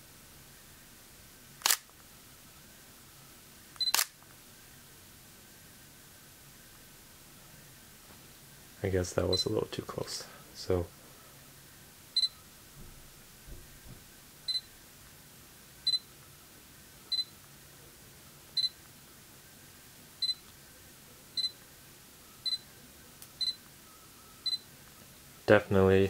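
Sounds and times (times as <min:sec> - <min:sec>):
camera autofocus double beep: 0:03.8 - 0:04.1.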